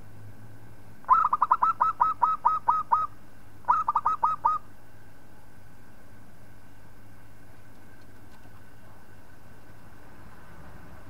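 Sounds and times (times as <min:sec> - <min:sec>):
dove cooing staccato notes: 0:01.0 - 0:04.7.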